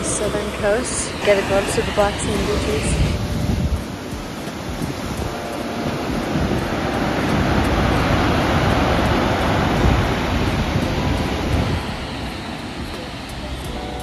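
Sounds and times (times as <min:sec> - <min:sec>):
ocean surf breaking on rocks: 0:00.0 - 0:14.0.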